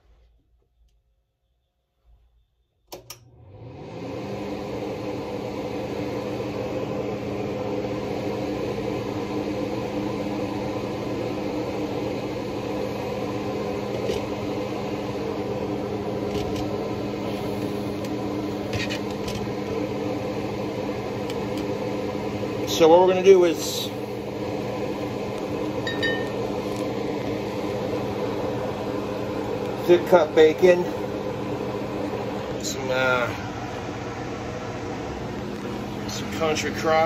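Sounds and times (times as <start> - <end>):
electric fan motor humming: 2.9 - 37.0.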